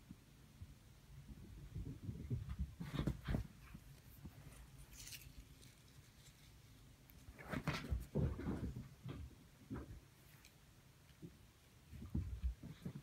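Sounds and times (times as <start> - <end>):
kitten paws thumping on bed: 1.9 - 3.8
paper ball crinkle: 3.9 - 7.4.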